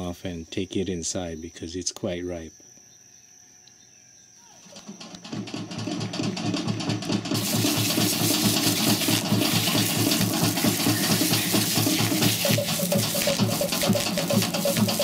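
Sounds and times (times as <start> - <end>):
low rhythmic pulsing: 5.5 - 15.0
hose nozzle spraying water: 7.3 - 15.0.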